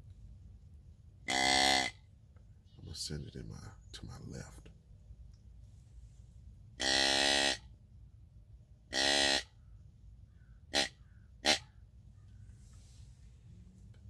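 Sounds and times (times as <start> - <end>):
deer grunt call: 1.3 - 2.0, 6.8 - 7.7, 8.9 - 9.6, 10.7 - 11.7.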